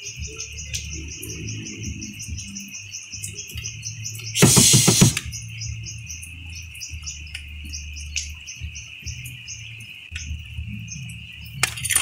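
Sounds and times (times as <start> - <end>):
insect rapid chirp: 0.0 - 11.6
insect high trill: 4.3 - 5.3.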